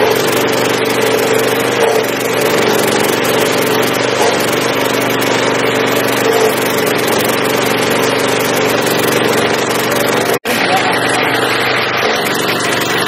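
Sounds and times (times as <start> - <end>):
cutting wheel grinding stump: 0.0 - 13.0
petrol engine running under load: 0.0 - 13.0.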